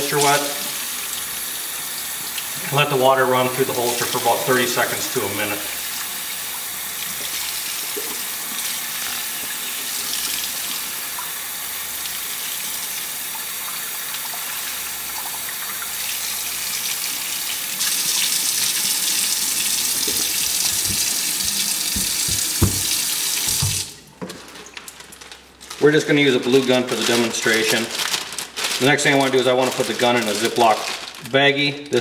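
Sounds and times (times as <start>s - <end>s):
faucet water splashing into sink: 4.0s - 24.0s
soft knocks: 20.1s - 23.9s.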